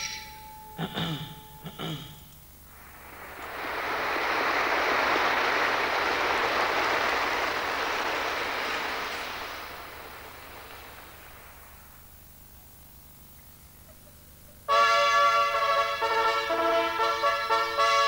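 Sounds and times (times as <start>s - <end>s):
audience applauding: 2.7s - 12.1s.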